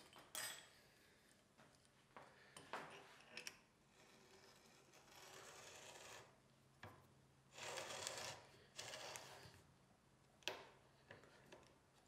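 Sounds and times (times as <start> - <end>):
faint rasping and rubbing: 3.9 - 6.4, 7.5 - 9.7.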